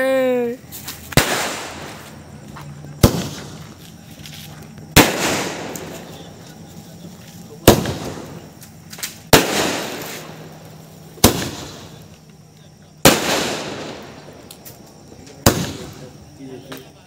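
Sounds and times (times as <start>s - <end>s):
firework bangs echoing: 0.8s - 2.3s, 3.0s - 3.8s, 4.9s - 6.4s, 7.5s - 12.2s, 13.0s - 14.8s, 15.4s - 16.4s.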